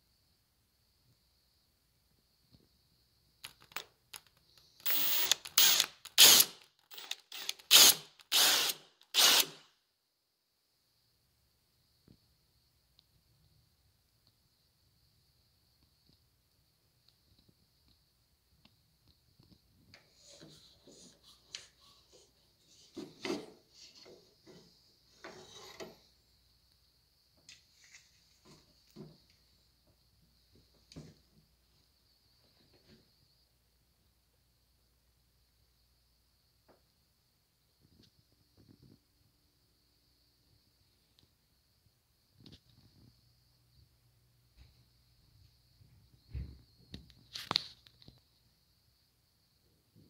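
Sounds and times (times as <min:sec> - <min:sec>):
cordless drill boring into wood: 0:04.8 - 0:09.6.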